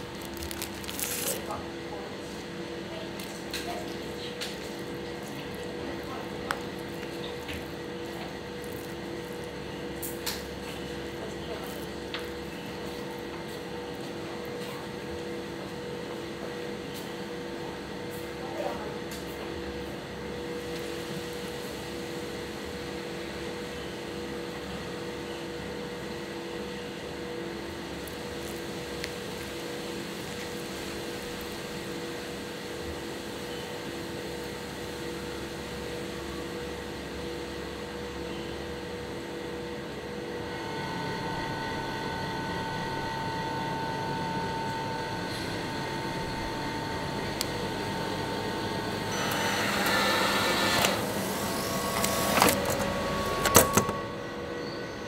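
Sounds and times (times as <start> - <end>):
vending machine hum: 0.0 - 55.0
higher louder hum: 40.3 - 49.8.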